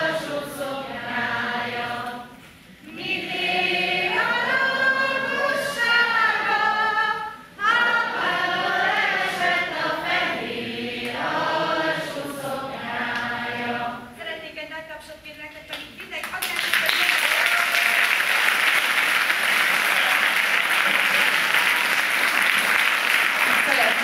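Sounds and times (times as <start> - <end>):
many voices singing along: 0.0 - 14.2
woman singing unaccompanied: 4.0 - 8.2.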